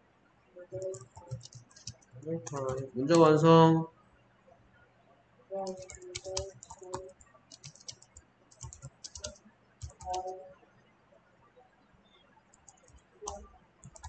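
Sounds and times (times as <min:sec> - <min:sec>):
typing on computer keyboard: 0:00.7 - 0:03.3, 0:05.6 - 0:10.4, 0:12.5 - 0:14.0.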